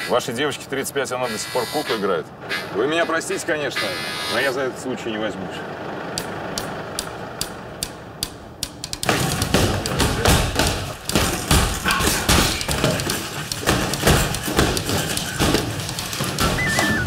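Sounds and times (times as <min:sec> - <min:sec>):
heavy thumps and knocks: 0:08.2 - 0:17.0.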